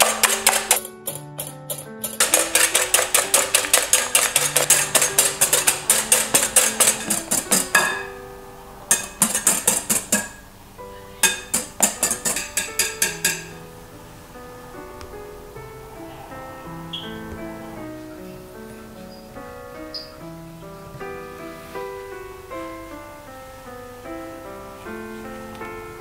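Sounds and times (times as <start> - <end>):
whisk clicking against glass bowl: 0.0 - 8.0, 8.9 - 10.4, 11.2 - 13.5
soft background music: 0.0 - 26.0.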